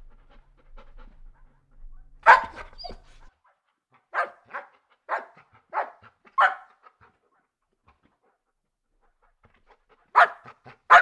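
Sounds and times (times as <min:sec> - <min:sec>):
dog barking: 0:02.2 - 0:03.2, 0:04.1 - 0:06.8, 0:10.1 - 0:11.0.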